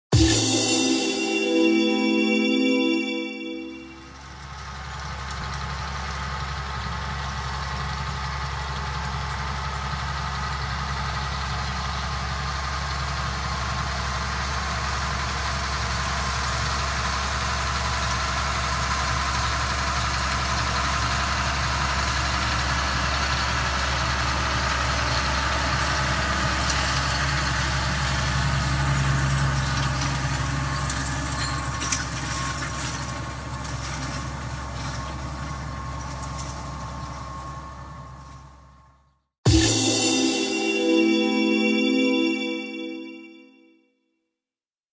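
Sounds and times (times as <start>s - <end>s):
tractor diesel engine running: 4.2s - 38.7s.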